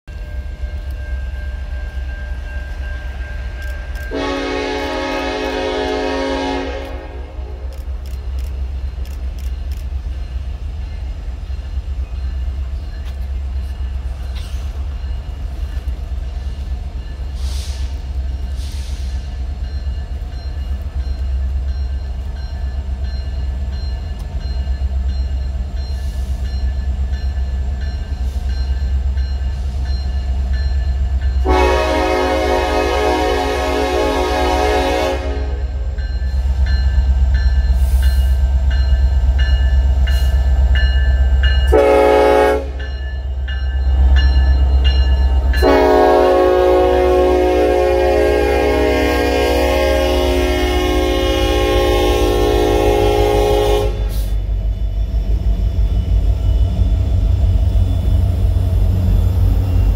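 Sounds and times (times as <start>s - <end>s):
low rumble of approaching train: 0.0s - 59.9s
train horn blast: 4.0s - 7.8s, 31.4s - 36.0s, 41.7s - 42.9s, 45.6s - 54.4s.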